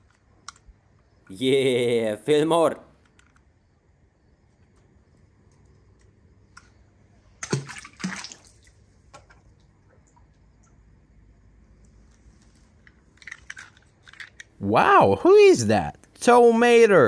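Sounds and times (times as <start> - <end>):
faint steady hiss: 0.0 - 17.0
toy car splashing into pool: 7.4 - 9.5.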